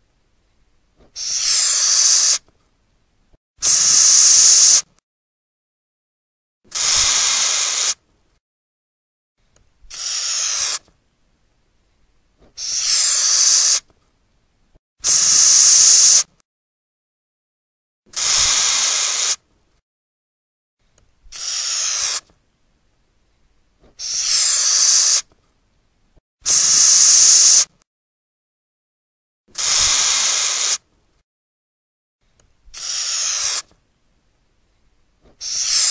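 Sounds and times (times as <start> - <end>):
cockroach hissing: 1.2 - 2.4, 3.6 - 4.9, 6.7 - 8.0, 9.9 - 10.8, 12.6 - 13.8, 15.0 - 16.3, 18.2 - 19.4, 21.3 - 22.2, 24.0 - 25.2, 26.5 - 27.7, 29.6 - 30.8, 32.8 - 33.6, 35.4 - 35.9.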